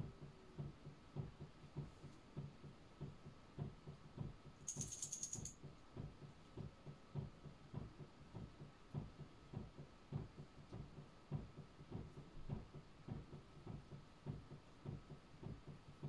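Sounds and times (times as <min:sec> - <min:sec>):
high rattle of quick clicks: 0:04.6 - 0:05.6.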